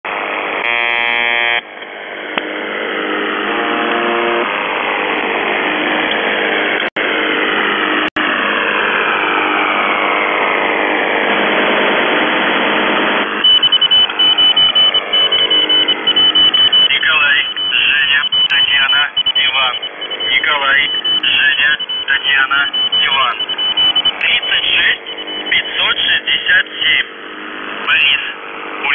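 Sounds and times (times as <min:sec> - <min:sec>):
radio buzz: 0:00.1 - 0:28.9
sweeping interference tones: 0:00.1 - 0:28.9
fast choppy pulsing: 0:02.2 - 0:28.9
radio static hiss: 0:10.8 - 0:28.9.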